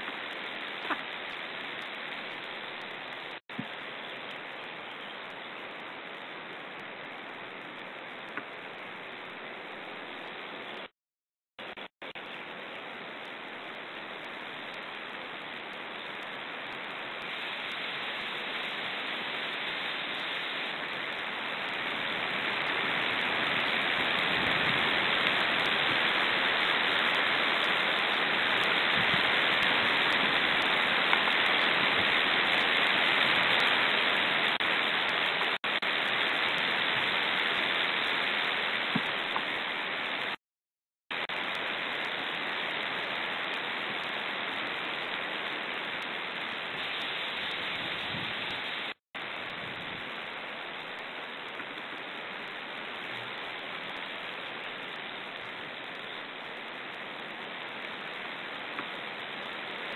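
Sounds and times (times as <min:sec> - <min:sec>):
wind hissing on microphone: 0:16.9 - 0:34.7, 0:46.6 - 0:50.3.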